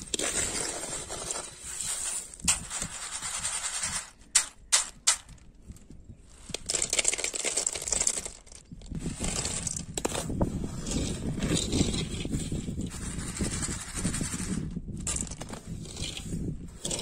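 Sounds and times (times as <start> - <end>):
peanuts and sand rattling in skimmer: 0.0 - 4.5, 6.3 - 10.0
nuts clattering into metal bowl: 6.5 - 10.1.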